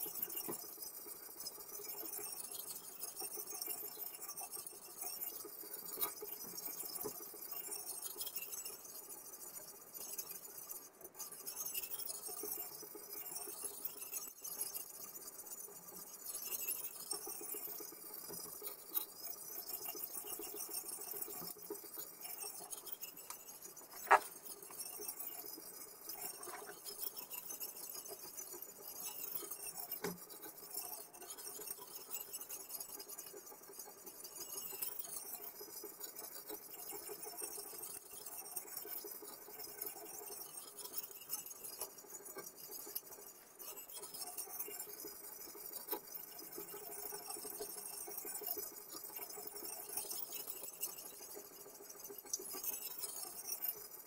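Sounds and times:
knife scraping on sharpener: 0:23.2 - 0:24.3.

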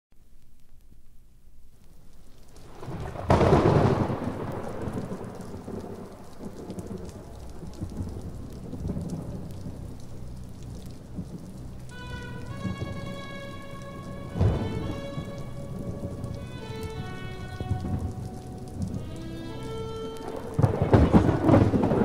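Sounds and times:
steady rain: 0:00.2 - 0:22.0
thunder rumbling: 0:02.5 - 0:22.0
sharp thunderclap: 0:02.7 - 0:09.8, 0:14.4 - 0:15.3, 0:20.3 - 0:22.0.

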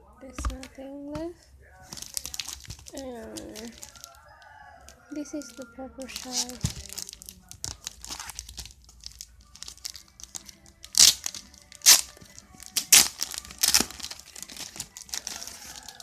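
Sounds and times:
plastic wrapping crinkling: 0:00.3 - 0:16.0.

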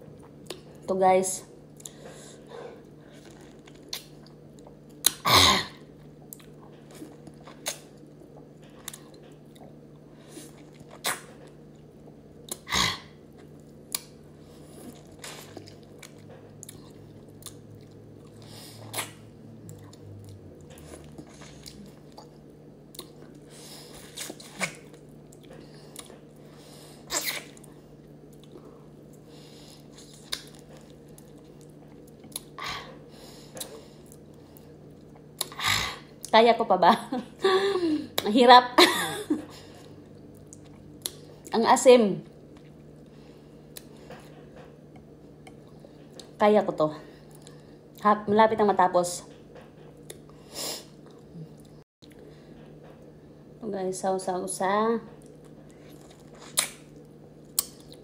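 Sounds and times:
faint low hum: 0:00.0 - 0:58.0
person chewing lemon: 0:02.8 - 0:05.2, 0:05.8 - 0:26.5, 0:27.1 - 0:32.6, 0:39.8 - 0:41.5, 0:55.2 - 0:58.0.

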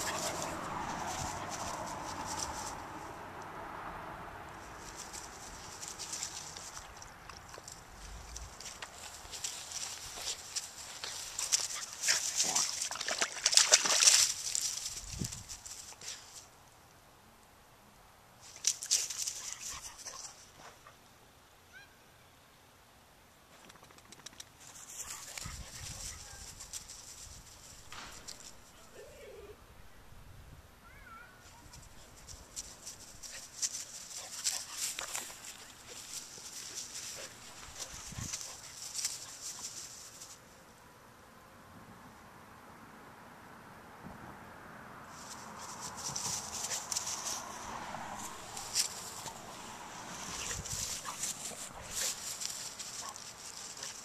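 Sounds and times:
footsteps through dry grass: 0:00.0 - 0:03.0, 0:04.6 - 0:16.5, 0:24.6 - 0:28.7, 0:31.6 - 0:40.4, 0:45.1 - 0:54.0.

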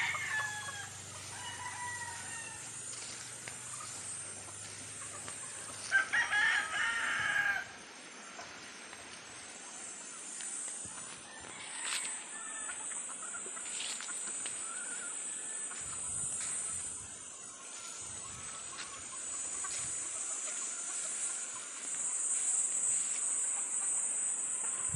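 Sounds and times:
high-pitched insect buzz: 0:00.0 - 0:07.8
roosters clucking and calling: 0:00.0 - 0:24.9.

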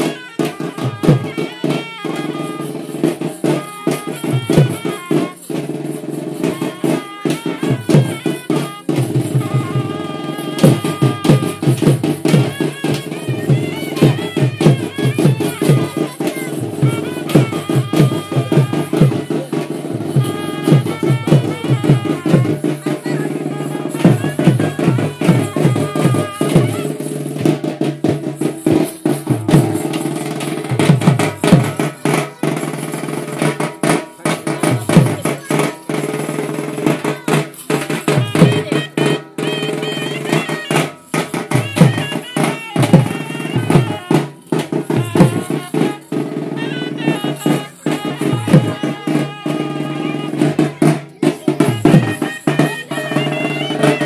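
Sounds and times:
wavering high melody: 0:00.0 - 0:35.4
fast hand drumming: 0:00.0 - 0:54.0.

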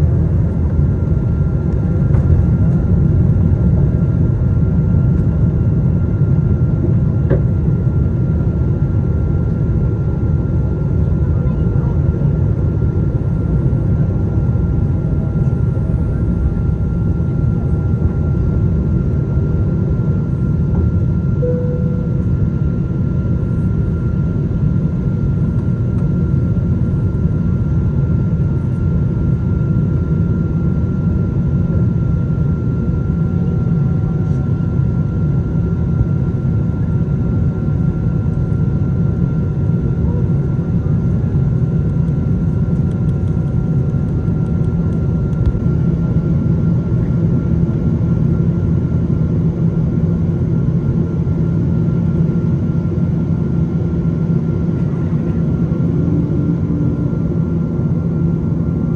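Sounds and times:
airplane cabin roar: 0:00.0 - 0:58.9
faint steady whine: 0:13.1 - 0:58.9.

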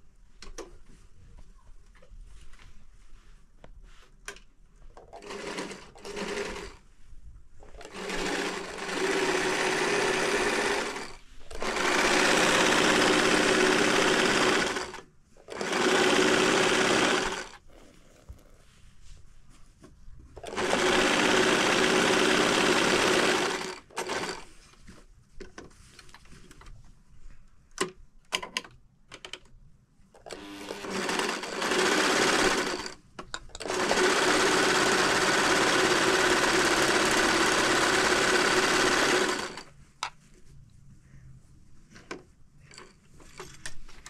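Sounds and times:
electric sewing machine stitching: 0:05.2 - 0:06.8, 0:07.8 - 0:17.6, 0:20.4 - 0:24.5, 0:30.3 - 0:33.0, 0:33.6 - 0:39.7.

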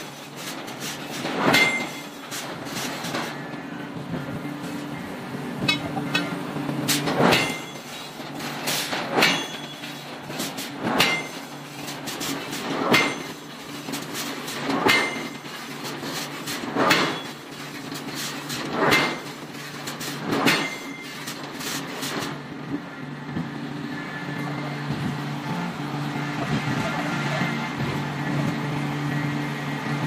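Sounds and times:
mechanical hum: 0:00.0 - 0:30.0
hammer striking hot iron: 0:01.2 - 0:03.3, 0:05.6 - 0:09.9, 0:10.6 - 0:11.5, 0:12.6 - 0:13.5, 0:14.7 - 0:15.4, 0:16.6 - 0:17.4, 0:18.7 - 0:19.3, 0:20.2 - 0:21.0.

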